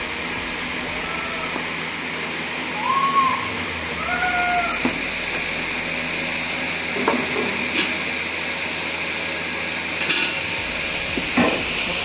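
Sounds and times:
furnace hiss and whine: 0:00.0 - 0:12.0.

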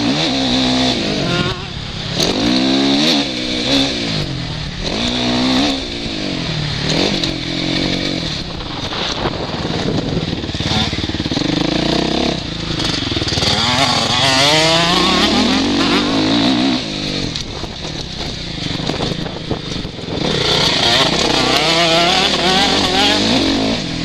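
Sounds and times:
motocross engine revving: 0:00.0 - 0:24.0
wind rushing: 0:05.7 - 0:11.7.

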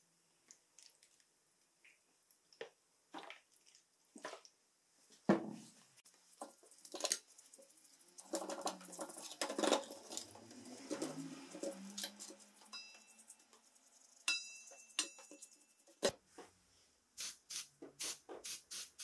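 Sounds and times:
bristle brush scrubbing metal: 0:06.2 - 0:16.1
squeeze bottle squirting liquid: 0:06.3 - 0:14.3, 0:17.2 - 0:19.0.

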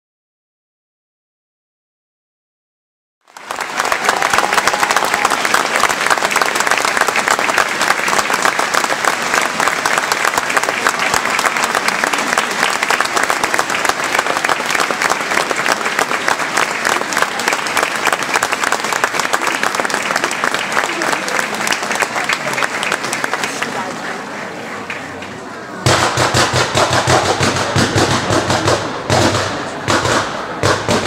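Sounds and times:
crowd applauding: 0:03.2 - 0:25.7.

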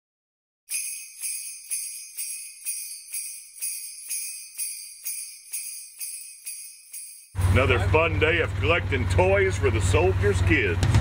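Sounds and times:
sleigh bells shaken: 0:00.7 - 0:07.6.

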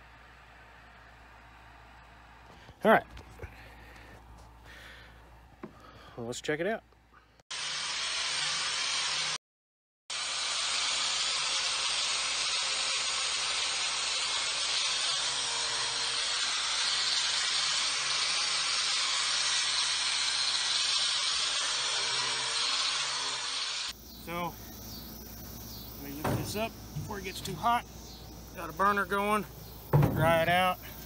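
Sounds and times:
wire brush grinder scouring metal: 0:07.5 - 0:09.4, 0:10.1 - 0:23.9.

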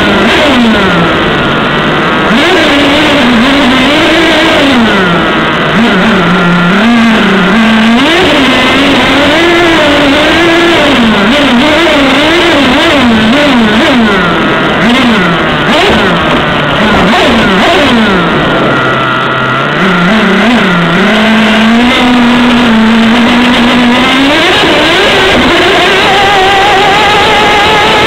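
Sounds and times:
rc truck nitro engine revving: 0:00.0 - 0:28.0.

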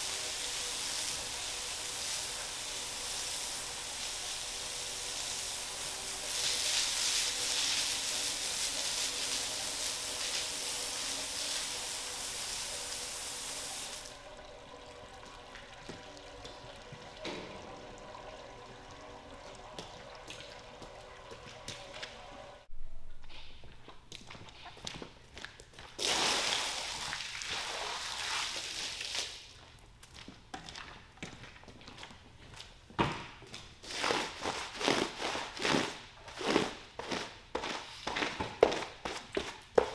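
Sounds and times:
water spraying from hose onto concrete: 0:00.0 - 0:14.2, 0:26.0 - 0:29.5.

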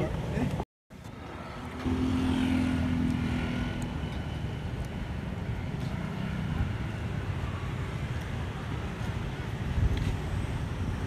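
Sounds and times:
traffic noise: 0:00.0 - 0:11.0
lower engine hum passing: 0:01.0 - 0:11.0
scooter engine passing: 0:01.1 - 0:08.9.

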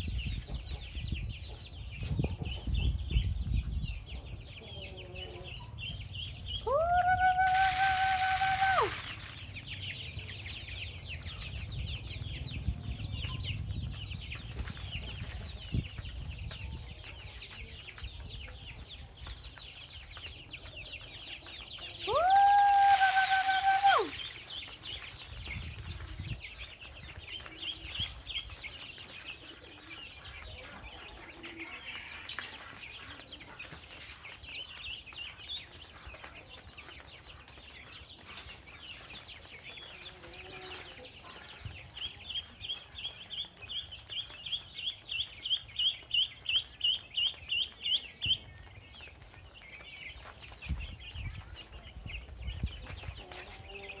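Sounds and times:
chicks peeping: 0:00.0 - 0:54.0
rooster-like call: 0:06.7 - 0:09.0, 0:22.1 - 0:24.2.

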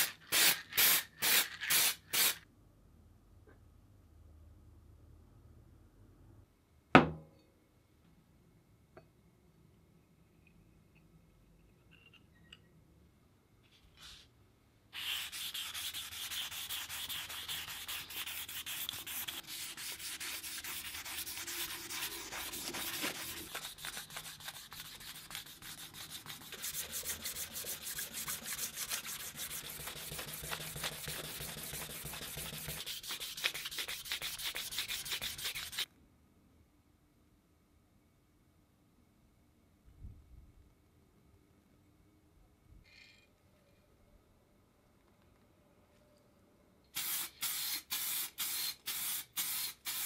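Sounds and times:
wet sandpaper rubbing on metal: 0:15.0 - 0:35.8.

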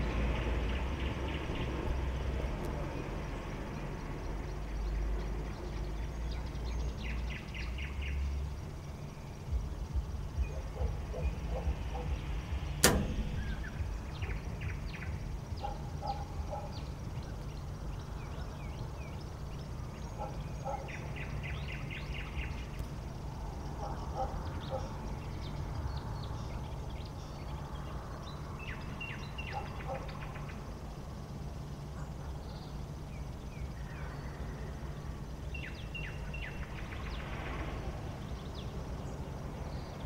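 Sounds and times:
low rumble: 0:00.0 - 0:20.2
sharp click: 0:12.7 - 0:14.3.

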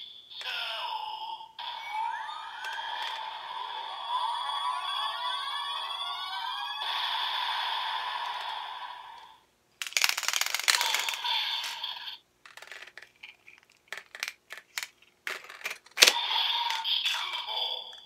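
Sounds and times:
toy belt electronic sound effect: 0:01.6 - 0:09.3, 0:09.9 - 0:12.9, 0:16.0 - 0:17.8
plastic clicks and rattles: 0:09.8 - 0:11.8, 0:12.4 - 0:17.2.

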